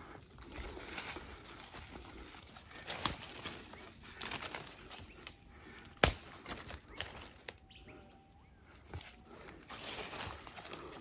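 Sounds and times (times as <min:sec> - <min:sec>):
footsteps rustling through leaves: 0:00.4 - 0:05.2, 0:08.9 - 0:11.0
twigs snapping: 0:00.4 - 0:07.7.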